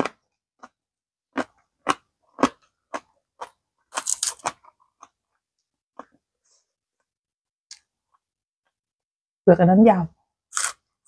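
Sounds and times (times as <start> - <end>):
green onion stalks crunching: 3.9 - 4.6.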